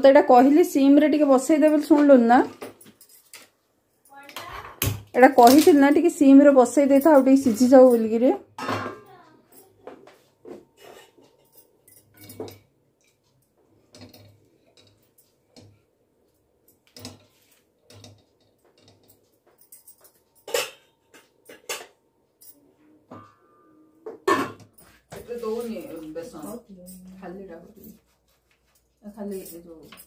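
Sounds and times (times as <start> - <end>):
utensils and pots clinking: 4.4 - 9.8, 10.7 - 15.8, 16.9 - 28.0.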